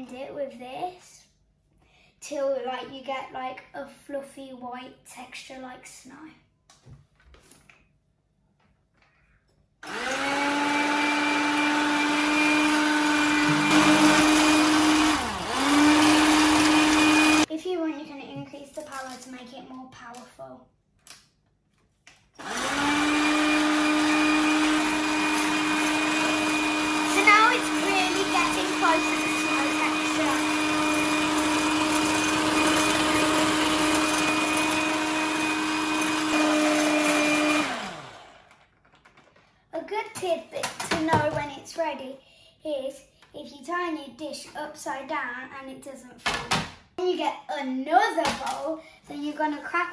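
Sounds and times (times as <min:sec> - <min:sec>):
electric whisk motor whine: 0:09.8 - 0:17.5, 0:22.4 - 0:38.6.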